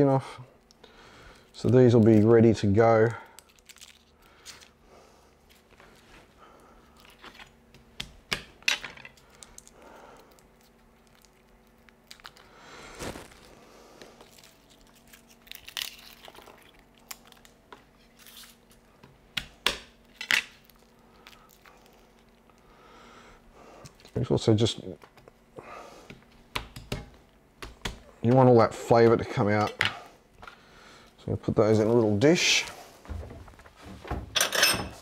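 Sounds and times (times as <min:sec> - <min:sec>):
garlic skins crinkling: 0:01.5 - 0:04.8, 0:14.2 - 0:19.0.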